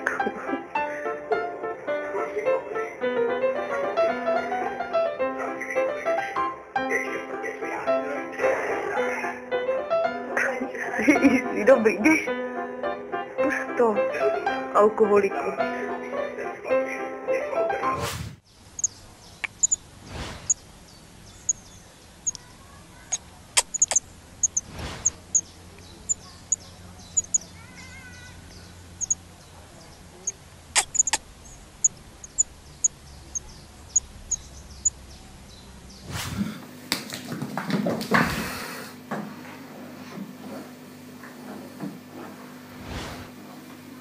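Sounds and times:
nestlings cheeping: 18.5 - 36.0.

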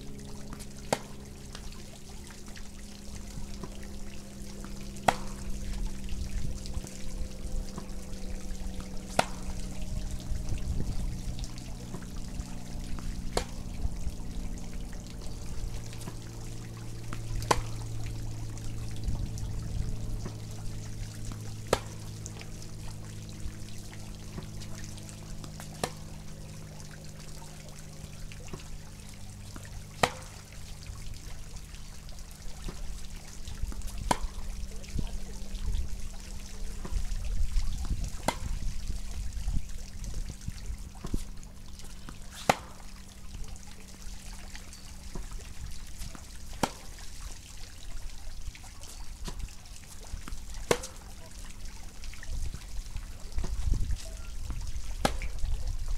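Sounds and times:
tennis ball hit by racket: 0.5 - 1.2, 5.0 - 5.5, 9.0 - 9.5, 13.0 - 13.6, 17.1 - 17.8, 21.7 - 22.0, 25.4 - 26.1, 29.6 - 30.4, 33.8 - 34.4, 38.2 - 38.6, 41.0 - 41.3, 42.1 - 42.9, 46.0 - 47.0, 49.2 - 49.4, 50.2 - 51.1, 53.4 - 55.4
ball bouncing taps: 5.0 - 5.8, 8.8 - 9.6, 33.8 - 34.5, 50.7 - 51.0.

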